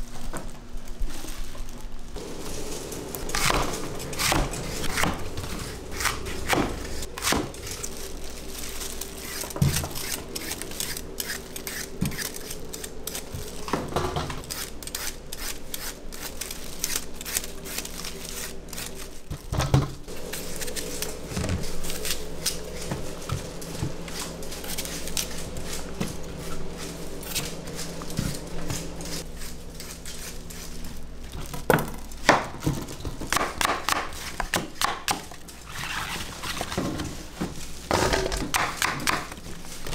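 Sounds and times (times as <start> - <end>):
steady hum: 2.0 - 39.9
peeler scraping fruit skin: 2.2 - 19.3, 20.1 - 31.6.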